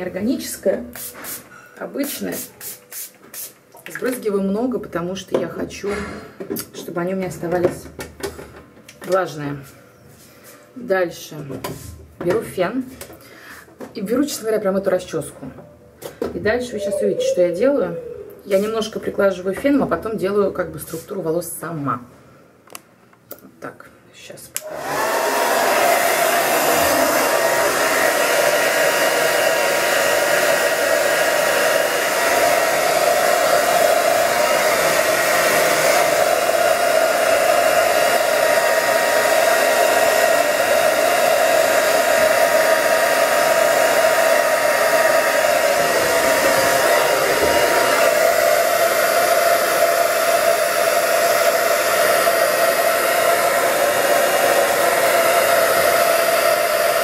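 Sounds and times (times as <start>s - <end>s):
hair dryer running: 24.6s - 57.0s.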